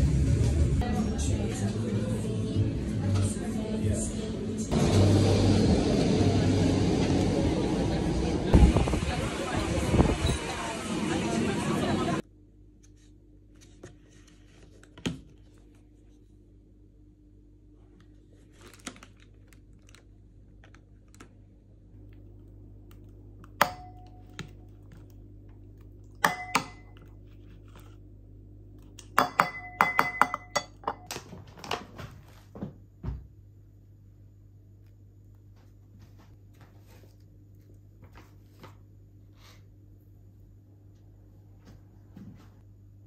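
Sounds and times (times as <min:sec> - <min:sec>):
spoon clinking on bowl: 0:26.2 - 0:27.0, 0:29.2 - 0:31.1.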